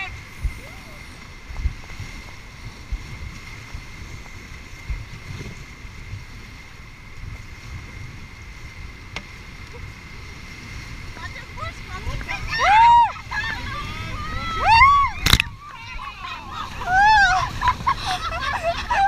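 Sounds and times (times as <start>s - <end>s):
wind buffeting microphone: 0.0s - 19.0s
whitewater rapids rushing: 9.6s - 19.0s
sharp click: 15.2s - 15.5s.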